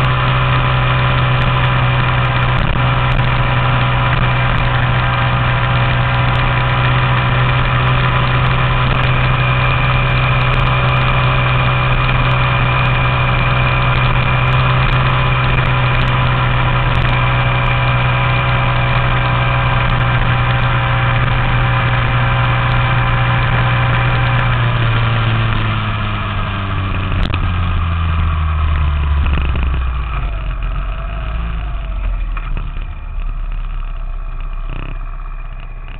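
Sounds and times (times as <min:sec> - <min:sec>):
minibike engine at high revs: 0:00.0 - 0:35.9.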